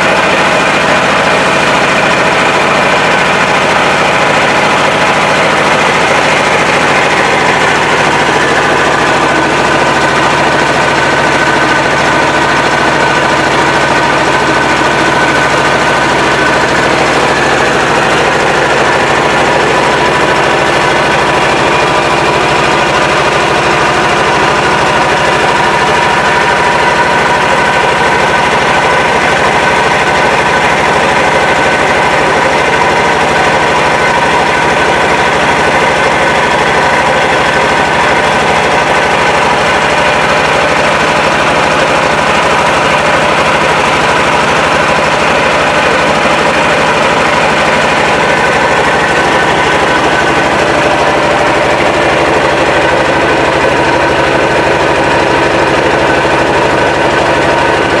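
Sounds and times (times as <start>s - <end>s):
boat engine running: 0.0s - 58.0s.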